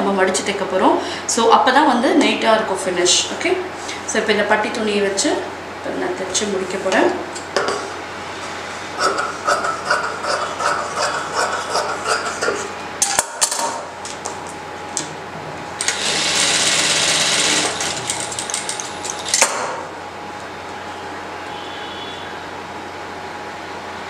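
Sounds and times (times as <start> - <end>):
sewing machine stitching: 15.8 - 18.4.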